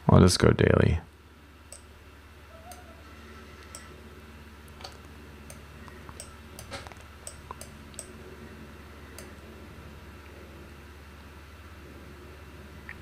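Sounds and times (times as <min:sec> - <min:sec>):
low steady hum: 0:00.0 - 0:13.0
faint computer clicks: 0:03.6 - 0:03.9, 0:09.2 - 0:09.4.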